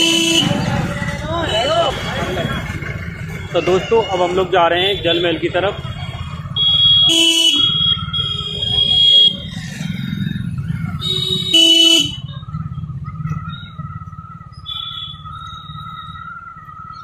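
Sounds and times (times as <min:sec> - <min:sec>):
car horns honking: 0:00.0 - 0:02.5, 0:03.3 - 0:09.5, 0:10.9 - 0:12.4
vehicle engine running: 0:00.0 - 0:17.0.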